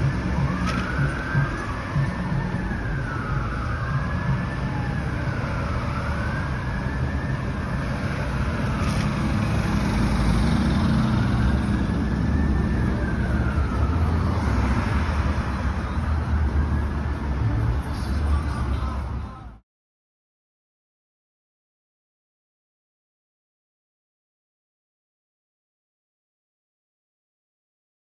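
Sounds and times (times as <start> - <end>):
fire siren wailing: 0.0 - 18.0
engines and road traffic rumble: 0.0 - 19.6.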